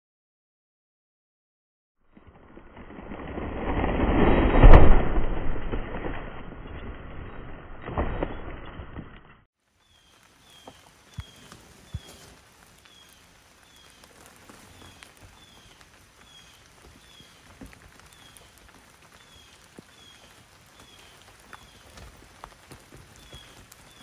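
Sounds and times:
light rain hiss: 0:09.6 - 0:24.0
raindrop taps: 0:10.1 - 0:24.0.

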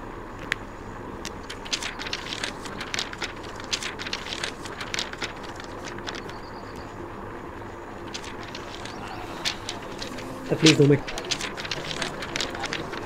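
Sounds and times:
low background noise: 0:00.0 - 0:13.0
paper rustling: 0:01.3 - 0:06.4, 0:08.0 - 0:13.0.

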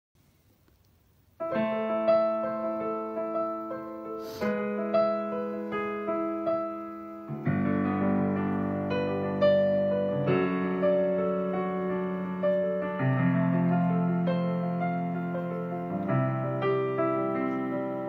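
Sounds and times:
digital piano chords and melody: 0:01.3 - 0:18.0.

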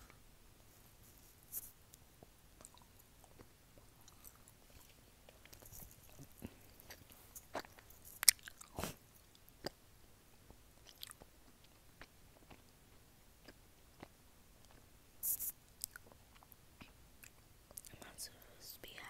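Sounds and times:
chewing mouth sounds: 0:02.6 - 0:09.8, 0:10.8 - 0:14.8, 0:15.8 - 0:18.0.

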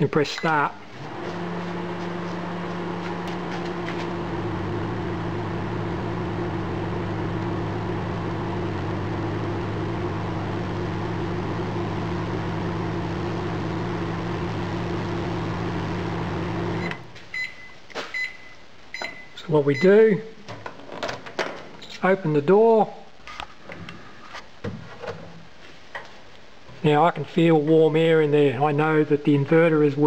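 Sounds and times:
microwave oven humming: 0:00.9 - 0:17.0
short high beeps: 0:16.8 - 0:19.9.

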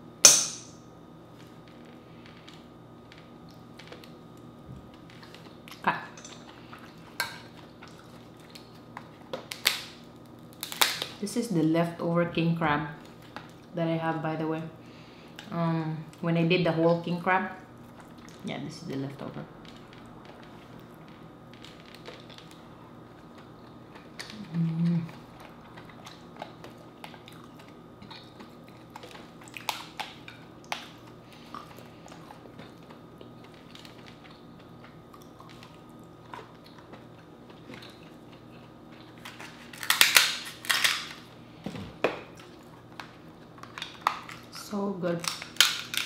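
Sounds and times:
soft chewing: 0:01.4 - 0:09.6, 0:19.6 - 0:39.8
person humming mm: 0:24.3 - 0:25.2
scissors crunching through shell: 0:39.2 - 0:41.2, 0:45.2 - 0:46.0.

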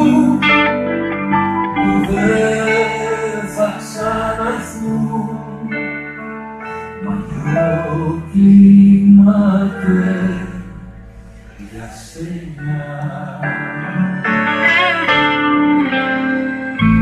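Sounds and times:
electric guitar: 0:00.0 - 0:08.8, 0:13.0 - 0:17.0
keyboard: 0:00.0 - 0:17.0
person singing: 0:00.0 - 0:17.0.

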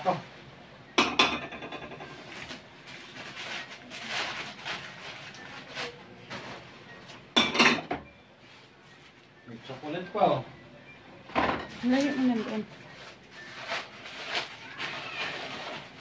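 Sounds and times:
newspaper rustling: 0:02.2 - 0:06.7, 0:11.9 - 0:16.0
ceramic plates clinking: 0:07.3 - 0:08.1.

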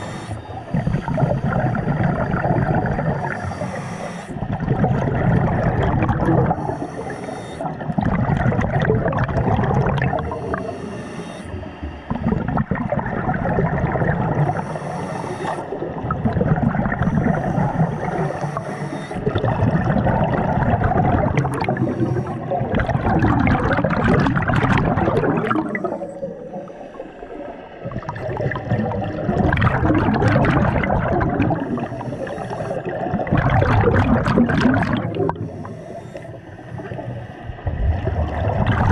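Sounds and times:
bubbles gurgling underwater: 0:00.0 - 0:03.6, 0:04.4 - 0:10.7, 0:11.8 - 0:14.8, 0:15.4 - 0:38.9
diver breathing through regulator: 0:00.0 - 0:04.7, 0:06.4 - 0:08.0, 0:10.0 - 0:12.6, 0:14.2 - 0:16.2, 0:16.8 - 0:28.7, 0:30.1 - 0:33.3, 0:34.9 - 0:37.6.

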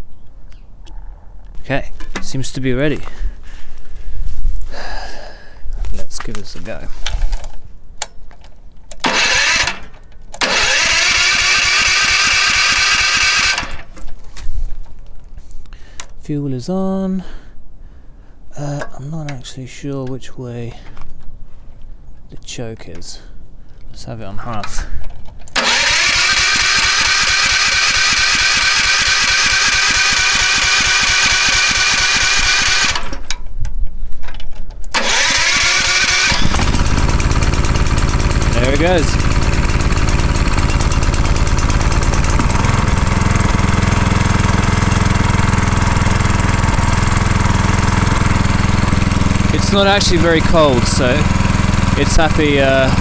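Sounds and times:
electric starter cranking engine: 0:08.9 - 0:14.1, 0:25.5 - 0:33.4, 0:34.9 - 0:53.0.

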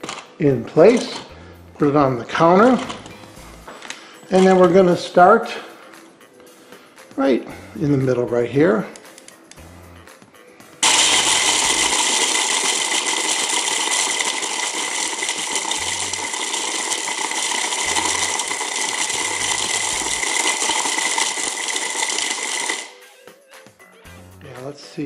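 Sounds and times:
blender crushing ice: 0:10.8 - 0:23.0.

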